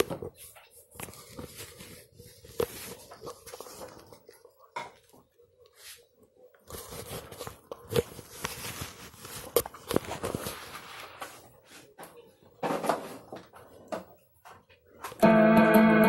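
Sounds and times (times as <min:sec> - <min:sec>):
rustling and handling noise: 0:00.0 - 0:15.2
distorted synthesizer sound: 0:15.2 - 0:16.0.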